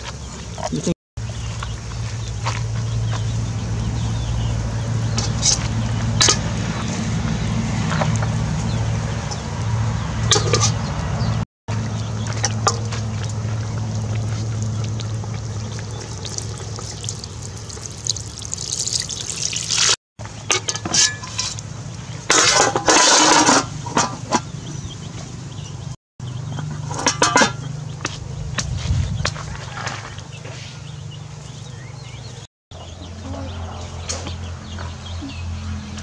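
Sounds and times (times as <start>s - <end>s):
water pouring into pot: 15.4s - 20.0s
metal spoon scraping pot: 22.3s - 24.2s.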